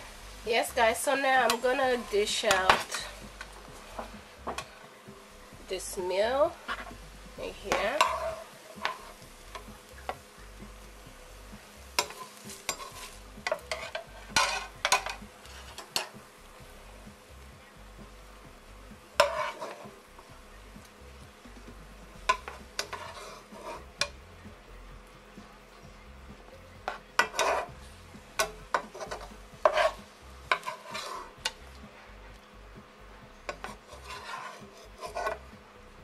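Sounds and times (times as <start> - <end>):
metal spatula scraping pan: 0.8 - 4.9, 5.7 - 10.2, 11.9 - 16.2, 19.2 - 20.0, 22.2 - 24.2, 26.9 - 31.6, 33.5 - 35.5.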